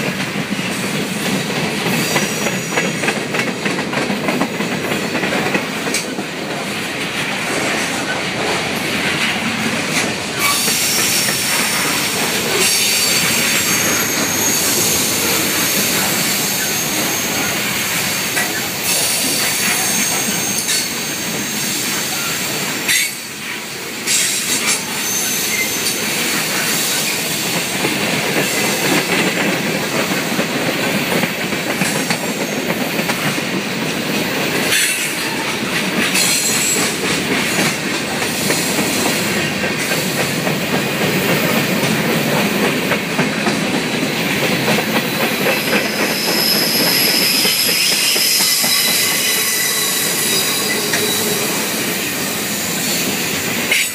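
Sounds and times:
wheels clickety-clack over joints: 0.0s - 16.4s, 24.1s - 49.2s
freight cars rumbling on rails: 0.0s - 53.9s
high wheel squeal: 10.4s - 23.3s, 24.1s - 27.6s, 45.3s - 53.9s.

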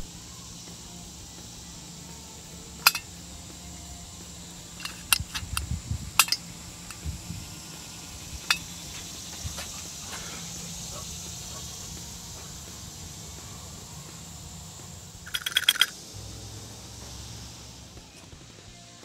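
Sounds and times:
metallic clicks and clinks: 2.8s - 3.2s, 4.7s - 7.0s, 8.4s - 8.7s, 15.3s - 16.0s.

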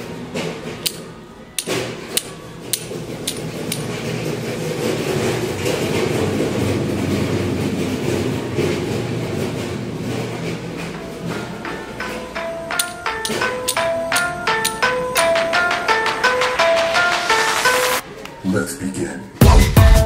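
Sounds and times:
hand tapping ceramic tiles: 11.6s - 15.6s.

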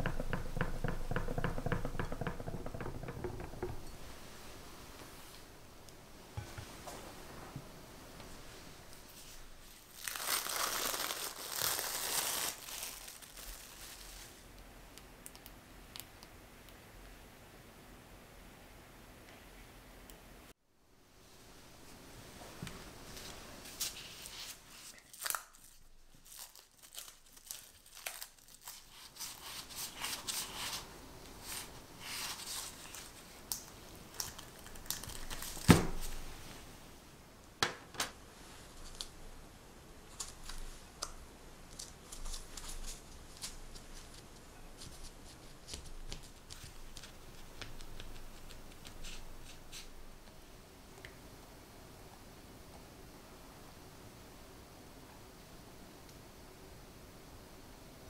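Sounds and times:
plastic film crinkling and tearing: 9.7s - 14.5s, 23.8s - 30.5s, 32.0s - 36.2s, 41.7s - 44.3s.

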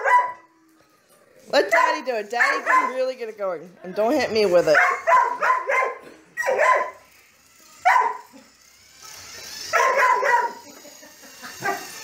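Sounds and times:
dog barking: 0.0s - 0.4s, 1.7s - 3.0s, 4.8s - 7.0s, 7.8s - 8.3s, 9.7s - 10.6s.

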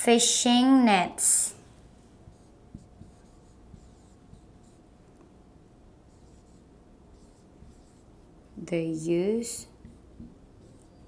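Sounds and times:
marker writing on whiteboard: 1.8s - 5.2s, 6.0s - 8.6s, 9.4s - 11.0s.

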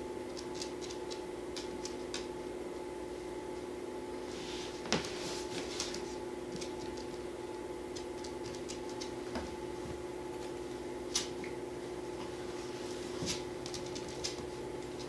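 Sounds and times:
low room hum: 0.0s - 15.0s
dog nails clicking on wooden floor: 7.9s - 9.2s, 13.6s - 15.0s.

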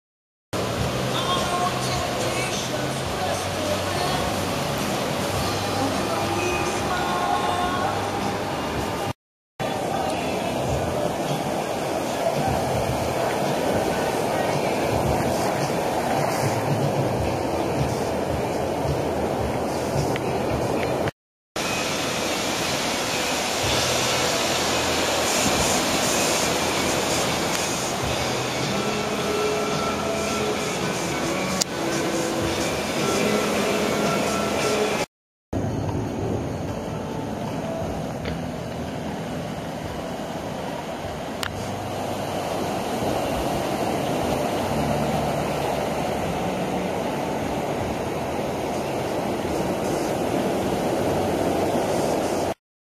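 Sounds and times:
rush of breaking whitewater: 0.6s - 35.1s, 38.5s - 52.6s
breaking wave rushing: 21.6s - 35.1s.

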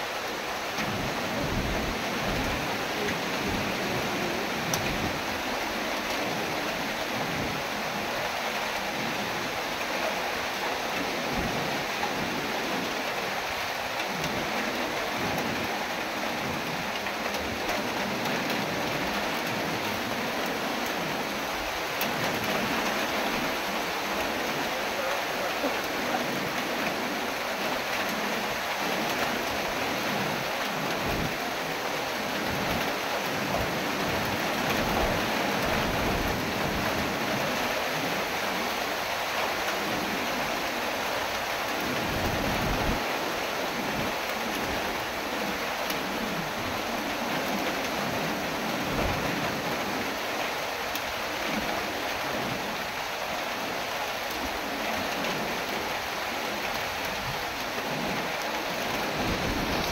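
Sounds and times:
heavy rain pouring: 0.0s - 59.9s
wind gusting through trees: 0.0s - 59.9s
wind buffeting microphone: 58.9s - 59.9s.

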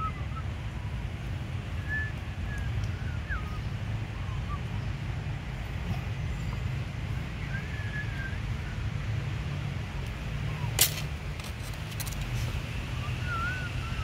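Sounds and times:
sharp crack: 10.7s - 12.2s.

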